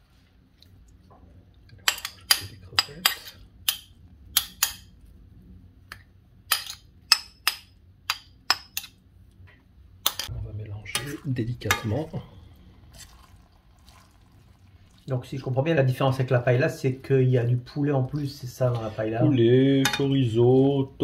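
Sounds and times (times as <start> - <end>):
utensil stirring in metal pan: 10.0 - 15.1, 18.1 - 19.2.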